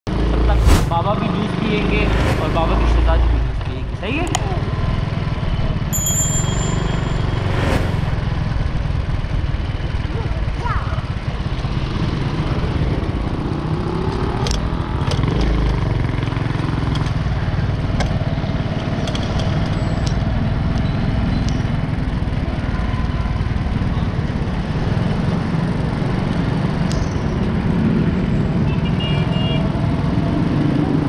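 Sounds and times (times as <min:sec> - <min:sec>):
engine revving: 0:00.1 - 0:03.6
motorcycle engines running: 0:00.1 - 0:31.0
road traffic: 0:00.1 - 0:31.0.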